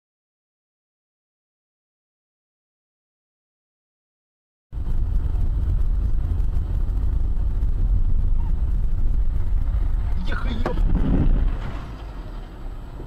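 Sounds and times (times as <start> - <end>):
car engine and road noise: 4.7 - 13.0.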